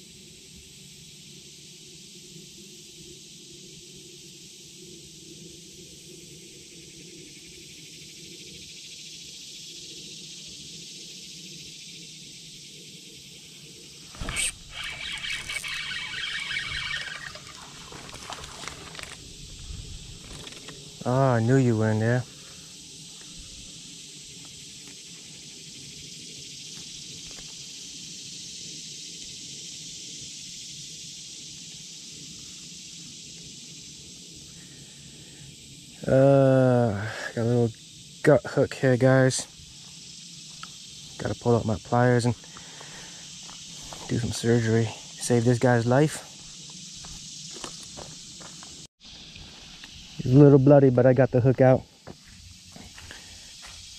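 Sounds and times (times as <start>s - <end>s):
insect chorus: 0.0s - 53.9s
handling rustle: 17.3s - 20.8s.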